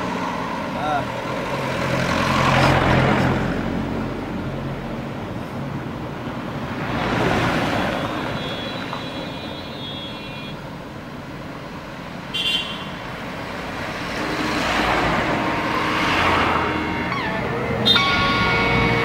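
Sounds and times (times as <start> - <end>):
vehicles passing: 0.0 - 19.0
car horn toot: 7.8 - 10.6, 12.3 - 13.0, 15.3 - 19.0.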